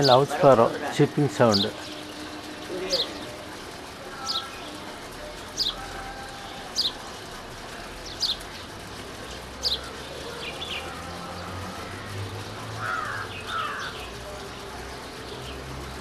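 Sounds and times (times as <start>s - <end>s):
sparrow chirping: 4.1s - 7.1s, 8.0s - 16.0s.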